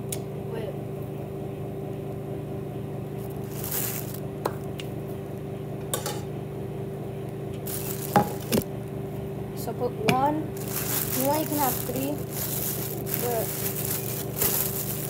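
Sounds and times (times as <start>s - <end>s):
plastic bag crinkling: 3.2s - 4.2s, 7.6s - 8.7s, 10.5s - 15.0s.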